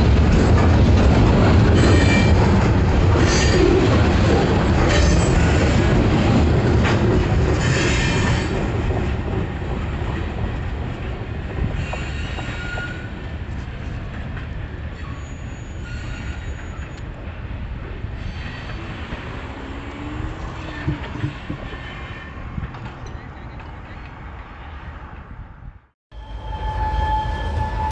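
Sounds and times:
freight train rumbling on track: 0:00.0 - 0:27.9
high wheel squeal: 0:15.0 - 0:17.0, 0:26.1 - 0:27.9.

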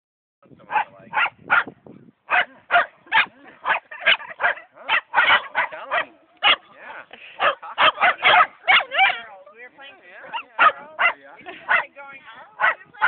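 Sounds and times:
dog barking: 0:00.7 - 0:01.7, 0:02.3 - 0:06.7, 0:07.4 - 0:09.3, 0:10.2 - 0:11.9, 0:12.6 - 0:12.8.

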